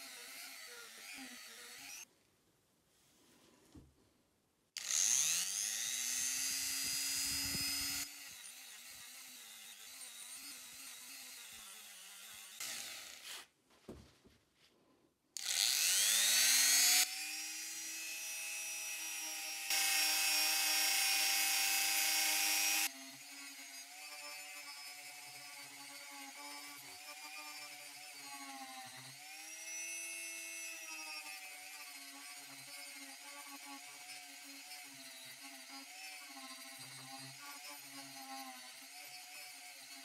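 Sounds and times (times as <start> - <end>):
rotary tool whine: 4.8 - 13.5, 15.4 - 25.4.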